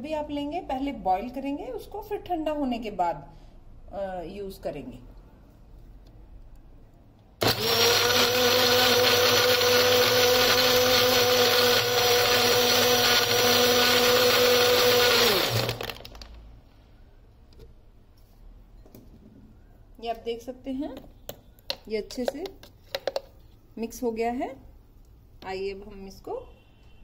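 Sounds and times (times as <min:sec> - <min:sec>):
blender motor whining: 0:07.4 - 0:16.0.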